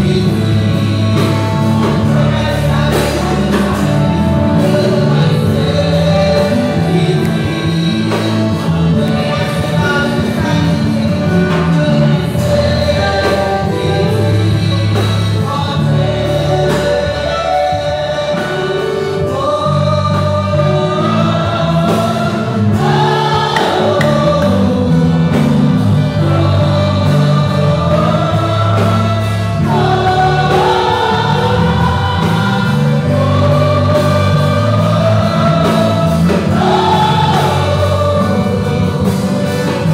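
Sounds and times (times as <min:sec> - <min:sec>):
bass: 0:00.0 - 0:39.9
group singing worship song: 0:00.0 - 0:39.9
keyboard holding long notes: 0:00.0 - 0:39.9.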